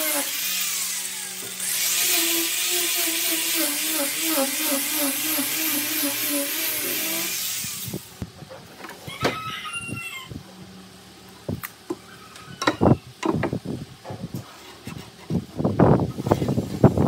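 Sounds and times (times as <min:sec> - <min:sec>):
power tool motor whine on wood: 0:00.0 - 0:08.2.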